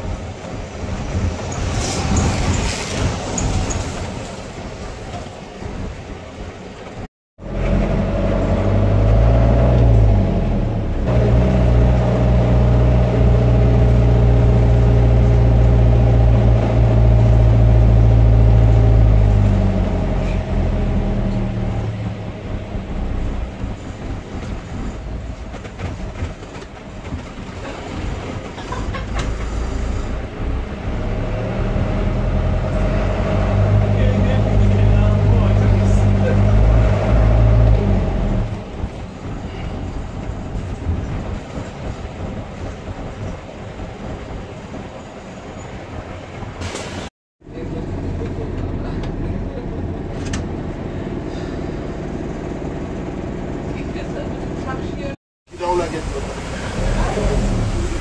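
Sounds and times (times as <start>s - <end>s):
street traffic: 0.0s - 58.0s
vehicle engine running close: 27.2s - 43.1s, 47.5s - 58.0s.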